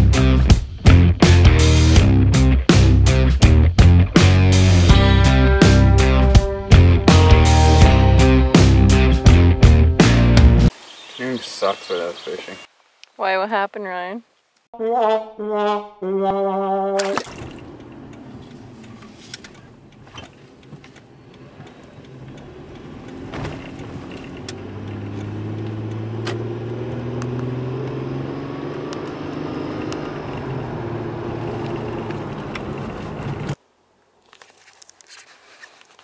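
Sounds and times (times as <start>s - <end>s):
tyre road noise: 16.3s - 36.0s
car engine from inside cabin: 17.5s - 33.6s.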